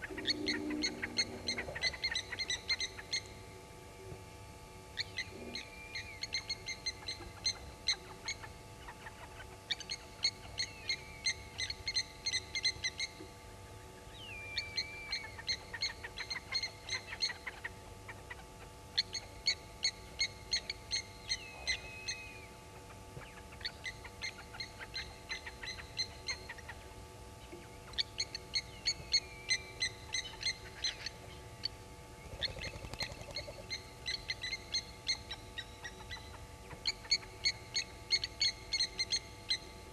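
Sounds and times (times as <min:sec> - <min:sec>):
lapwing metallic alarm calls: 0:00.0 - 0:03.4, 0:27.9 - 0:39.7.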